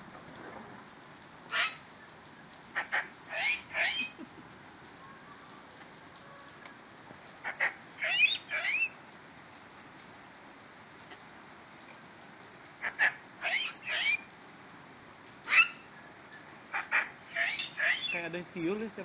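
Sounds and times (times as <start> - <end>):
rain hiss: 0.0 - 19.0
cockatoo calling: 1.5 - 1.8, 2.8 - 4.3, 7.4 - 9.0, 12.8 - 14.3, 15.5 - 15.9, 16.7 - 18.2.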